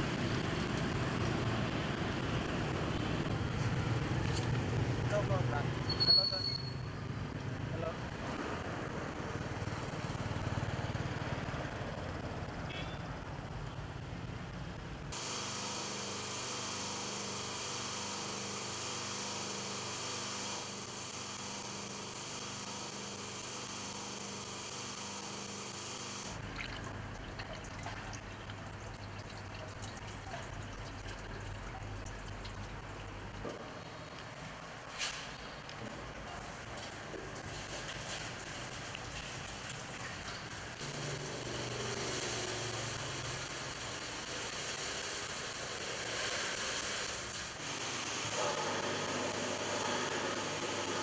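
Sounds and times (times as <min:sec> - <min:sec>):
low street rumble: 0:00.0 - 0:15.2, 0:26.4 - 0:44.0
liquid running from drums: 0:26.4 - 0:34.8, 0:35.4 - 0:50.1.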